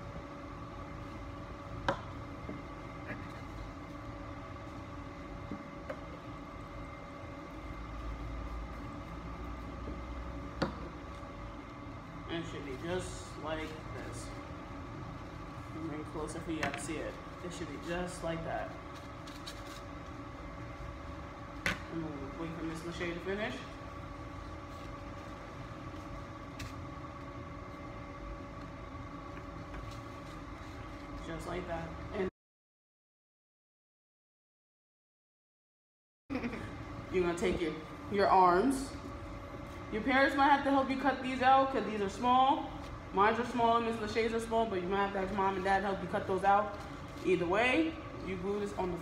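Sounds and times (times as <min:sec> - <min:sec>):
mechanical hum: 0:00.0 - 0:32.3, 0:36.3 - 0:49.0
paper handling noises: 0:18.7 - 0:20.2.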